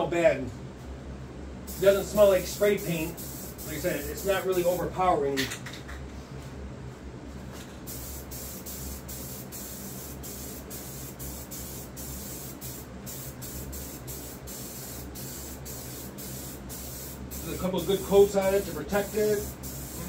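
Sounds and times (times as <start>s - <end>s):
aerosol can spraying: 1.7s - 4.8s, 7.9s - 20.0s.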